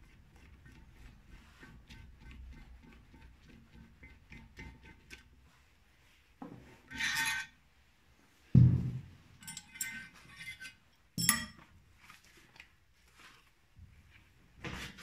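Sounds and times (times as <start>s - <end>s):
heavy metal part thudding: 8.6s - 9.2s
light metallic clinks: 9.4s - 10.2s, 11.2s - 11.6s.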